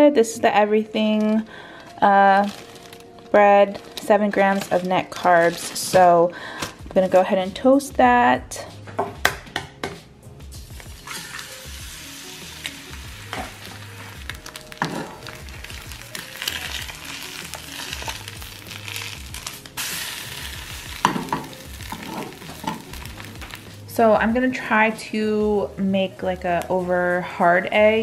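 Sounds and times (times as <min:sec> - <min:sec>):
egg sizzling in a skillet: 0:10.8 - 0:23.8.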